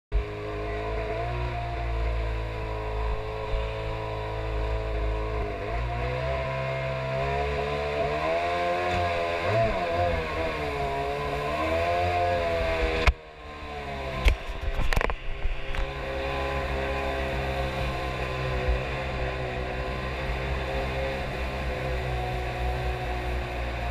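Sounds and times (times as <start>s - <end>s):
boat engine running: 0.1s - 23.9s.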